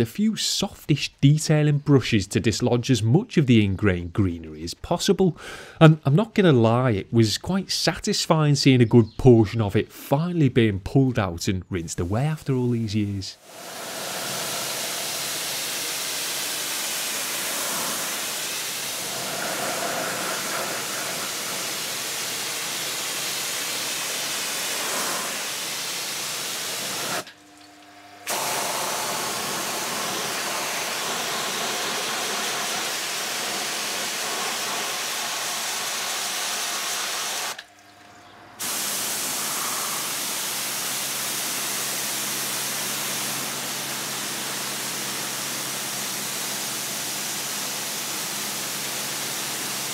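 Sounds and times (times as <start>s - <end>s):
pressure washer spraying water: 13.4s - 27.3s, 28.3s - 37.6s, 38.6s - 49.9s.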